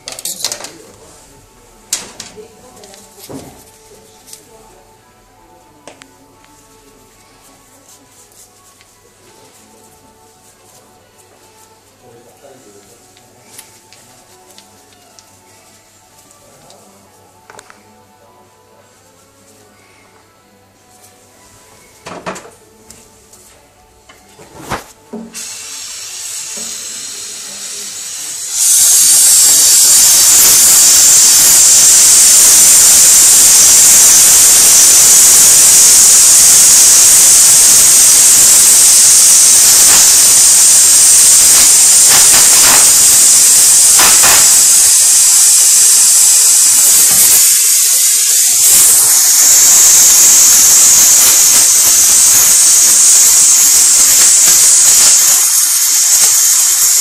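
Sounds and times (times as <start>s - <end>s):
gas torch flame hissing: 24.5s - 57.0s.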